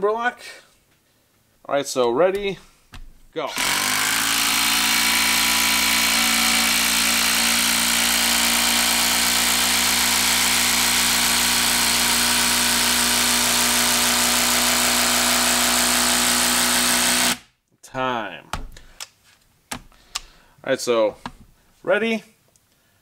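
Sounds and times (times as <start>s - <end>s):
impact driver hammering: 2.4s - 17.4s.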